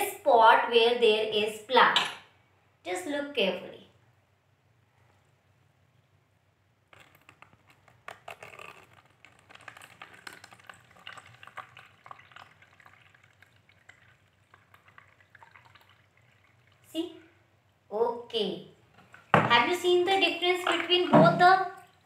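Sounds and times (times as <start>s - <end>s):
water trickling into a cup: 7.0s - 17.2s, 20.6s - 22.0s.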